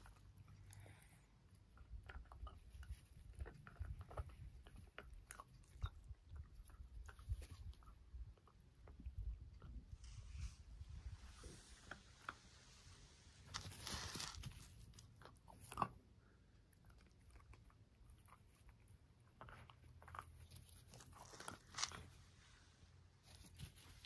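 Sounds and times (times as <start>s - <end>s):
dog chewing and biting: 1.5s - 10.0s, 13.6s - 22.2s.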